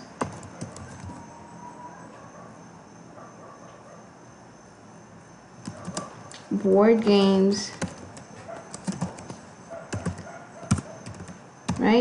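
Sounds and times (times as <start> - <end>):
keyboard keystrokes: 0.2 - 1.2, 7.7 - 11.9.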